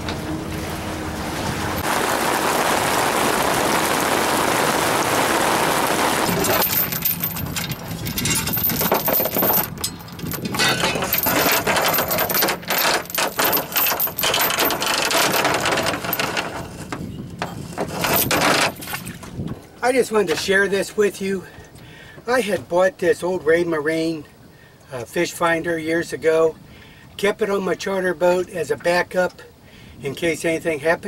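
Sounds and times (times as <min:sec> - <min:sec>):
steady rushing noise: 0:00.0 - 0:09.7
anchor chain rattling against boat: 0:06.3 - 0:19.6.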